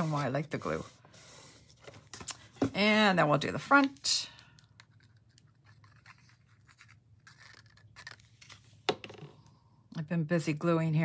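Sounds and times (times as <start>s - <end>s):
cardstock rustling: 4.7s - 8.8s.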